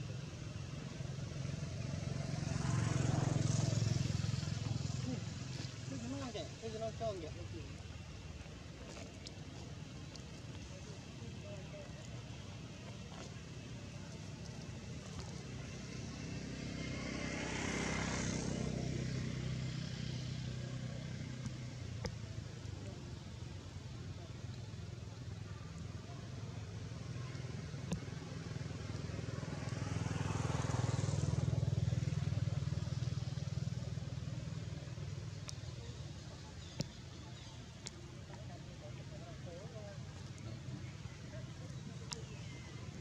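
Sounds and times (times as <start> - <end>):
vehicle passing by: 0.4 - 7.8, 13.0 - 22.0, 28.4 - 36.5.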